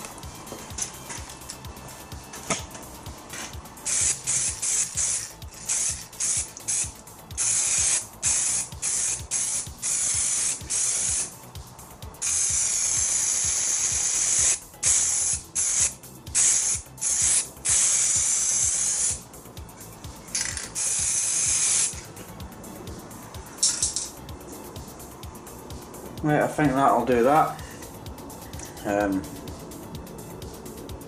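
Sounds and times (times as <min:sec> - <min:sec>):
spray paint can hissing: 0:03.4 - 0:11.4, 0:12.2 - 0:19.3, 0:20.3 - 0:22.0.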